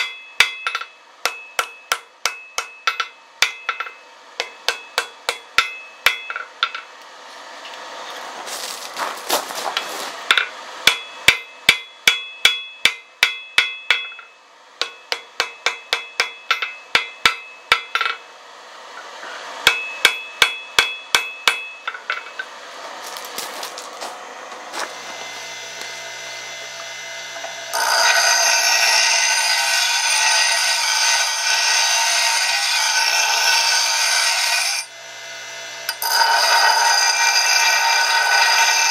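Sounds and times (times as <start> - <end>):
hammer striking steel on anvil: 0.0 - 7.0, 10.3 - 18.3, 19.0 - 22.6, 27.7 - 34.9, 35.9 - 38.9
bench grinder grinding steel: 14.0 - 38.9.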